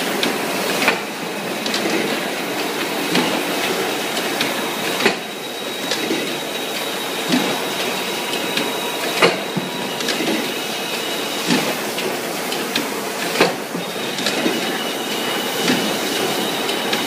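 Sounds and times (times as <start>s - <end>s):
machine clattering and clanking: 0.2s - 10.6s, 11.4s - 17.0s.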